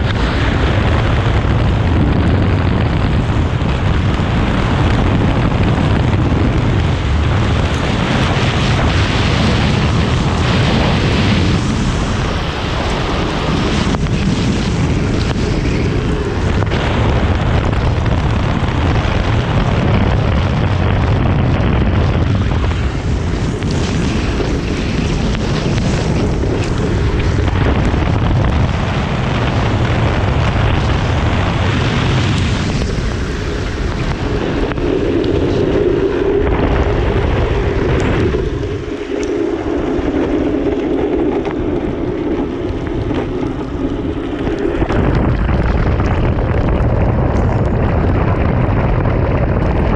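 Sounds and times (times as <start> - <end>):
wind buffeting microphone: 0.0 - 49.9
wheels hissing on wet road: 6.6 - 18.0.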